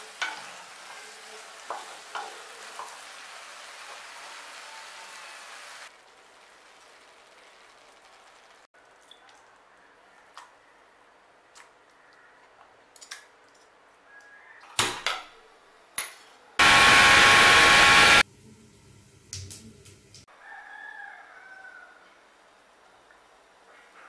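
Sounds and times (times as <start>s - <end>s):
mixer grinder motor running: 16.6s - 18.2s.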